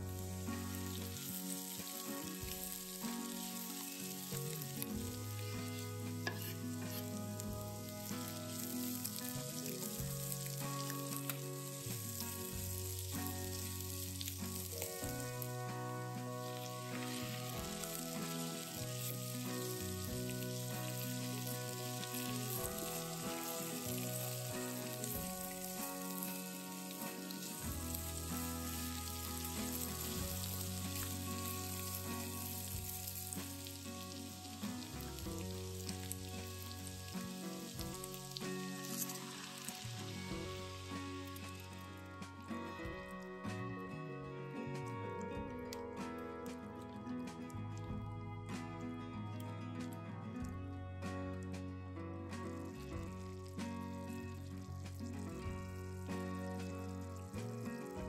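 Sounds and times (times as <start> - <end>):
vegetables sizzling in a frying pan: 0.0 - 43.0, 52.6 - 58.0
spatula stirring: 5.6 - 7.5.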